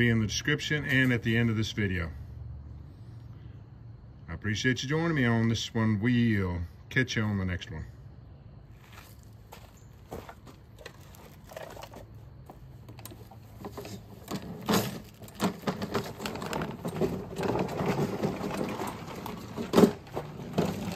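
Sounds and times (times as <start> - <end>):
clatter of objects: 10.1 - 20.9
objects clicking and knocking: 12.8 - 20.9.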